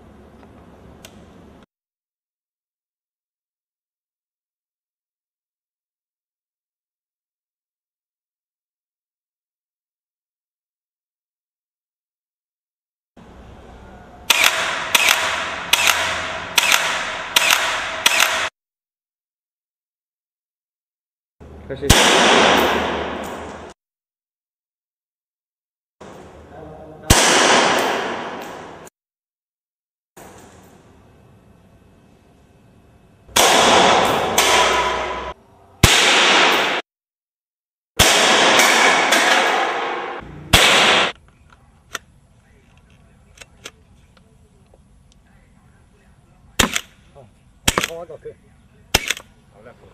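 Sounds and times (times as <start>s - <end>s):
rifle firing in rapid bursts: 14.3s - 18.5s, 40.5s - 41.2s
rifle gunshots: 14.3s - 18.5s, 21.9s - 23.7s, 27.1s - 28.8s, 33.4s - 36.8s, 38.0s - 41.2s, 46.6s - 47.0s, 47.6s - 48.0s, 48.9s - 49.2s.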